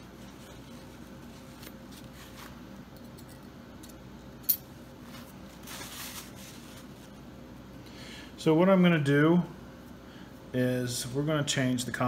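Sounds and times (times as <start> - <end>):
paper towel rustling: 0.0 - 2.6, 5.0 - 7.2.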